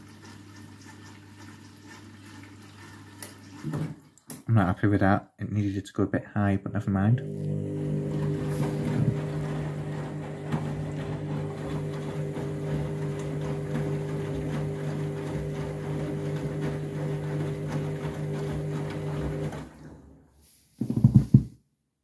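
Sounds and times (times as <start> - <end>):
water sloshing and splashing: 0.0 - 4.3, 8.0 - 20.2
washing machine motor hum: 7.2 - 21.4.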